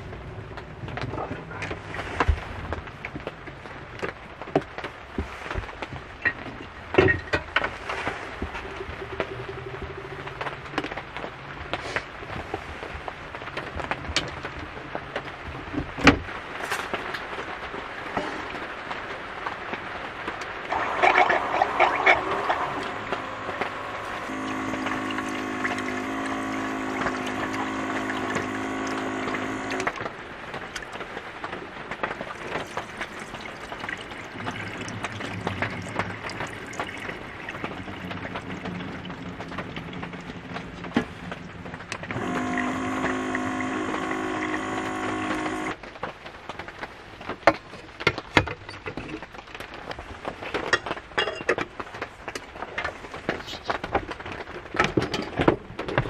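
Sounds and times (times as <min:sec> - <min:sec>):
water pump running: 0:20.6 - 0:45.8
water streaming into pot: 0:20.6 - 0:45.8
water poured into sink: 0:20.7 - 0:29.9, 0:32.2 - 0:40.2.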